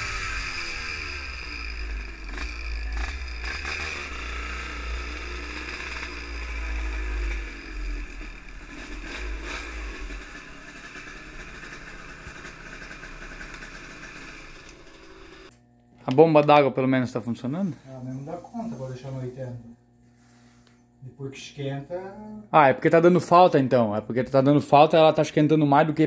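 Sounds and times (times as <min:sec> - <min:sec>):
two-stroke motorcycle engine: 0:00.0 - 0:15.6.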